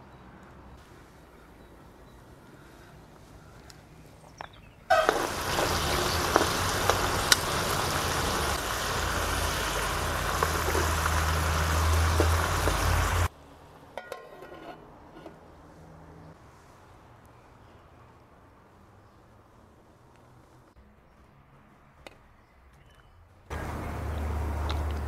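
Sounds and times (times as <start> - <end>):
sauce bubbling and sizzling in a pot: 4.9 - 13.3.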